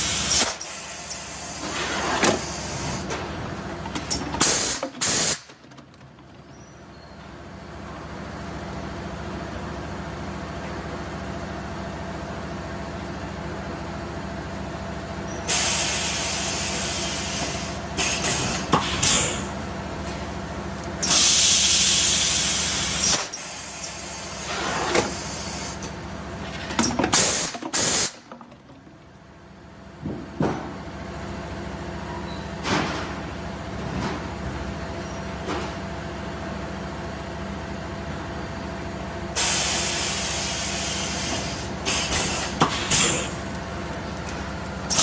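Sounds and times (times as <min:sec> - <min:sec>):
pneumatic mould clunks: 0:00.0 - 0:07.3, 0:15.3 - 0:20.2, 0:21.0 - 0:29.1, 0:30.0 - 0:30.8, 0:39.4 - 0:43.6, 0:44.2 - 0:45.0
compressed air hissing: 0:04.4 - 0:05.5, 0:15.5 - 0:19.5, 0:21.0 - 0:25.8, 0:27.2 - 0:28.3, 0:39.4 - 0:43.4.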